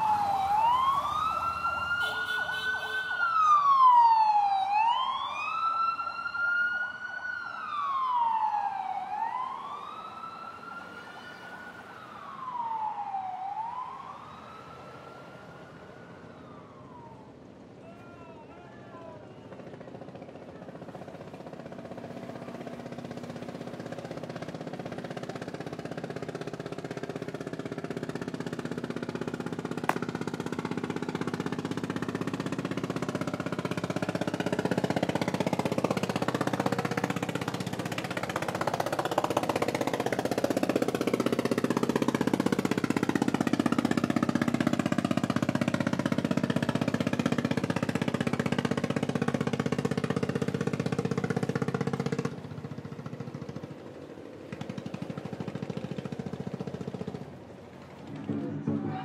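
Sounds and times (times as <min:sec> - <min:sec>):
vehicle engine droning past: 0:19.5 - 0:59.0.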